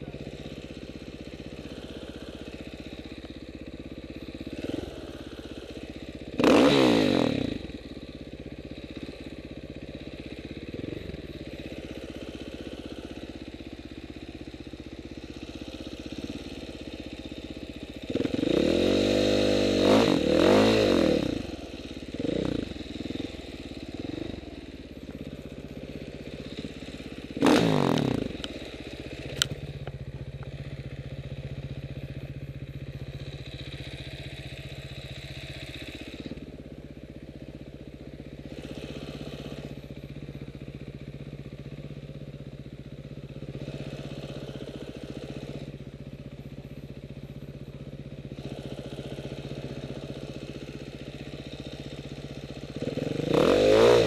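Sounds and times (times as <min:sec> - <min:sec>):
dirt bike engine idling and revving: 0:00.0 - 0:54.0.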